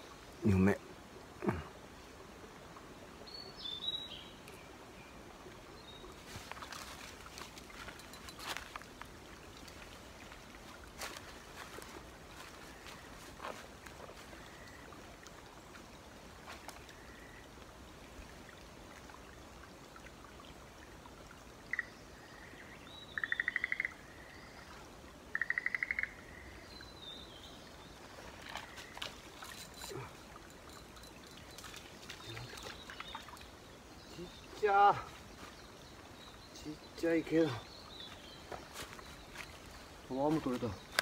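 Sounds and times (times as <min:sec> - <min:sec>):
faint bird chirps: 0:21.7 - 0:24.7
bird calling with trills: 0:23.1 - 0:24.0.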